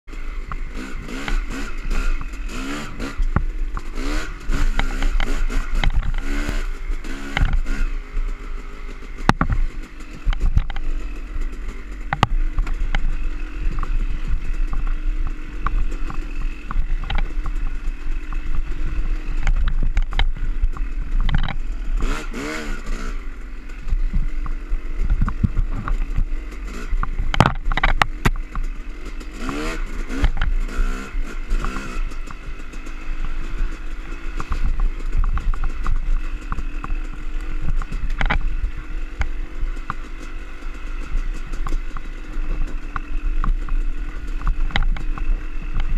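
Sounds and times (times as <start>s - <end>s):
dirt bike engine revving: 0.1s - 45.9s
bike clattering and knocking: 8.4s - 22.6s, 23.7s - 45.9s.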